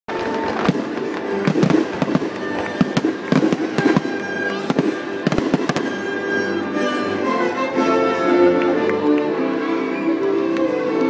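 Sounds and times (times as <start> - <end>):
fireworks popping and crackling: 0.1 - 6.6
music playing: 0.1 - 11.0.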